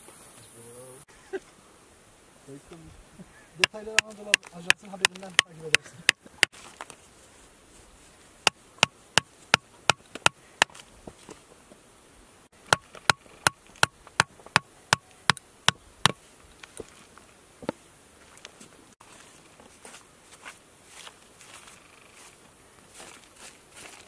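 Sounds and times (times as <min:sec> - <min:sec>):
hammer striking steel chisel: 0:03.6 - 0:05.9.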